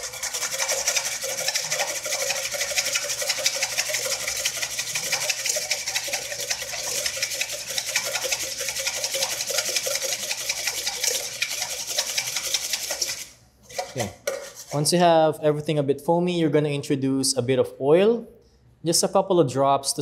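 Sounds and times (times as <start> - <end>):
whisk scraping metal bowl: 0.0 - 15.0.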